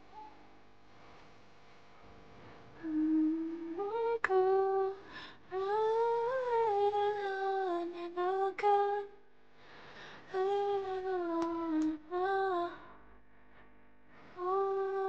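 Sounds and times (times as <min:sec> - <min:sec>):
woman humming: 0:02.8 - 0:09.0, 0:10.3 - 0:12.8, 0:14.4 - 0:15.0
small click: 0:11.4 - 0:12.0.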